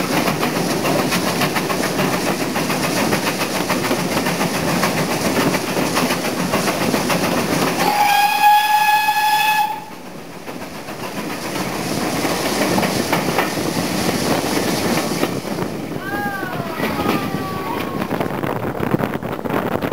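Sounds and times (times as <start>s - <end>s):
train wheels clattering on rails: 0.0s - 19.9s
steam whistle: 7.8s - 9.9s.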